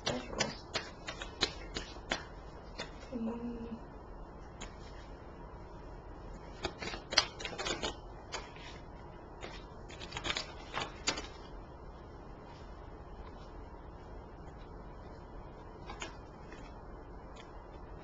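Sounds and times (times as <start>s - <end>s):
cards shuffling: 0.0s - 3.1s, 6.5s - 8.8s, 9.4s - 11.5s, 15.7s - 17.8s.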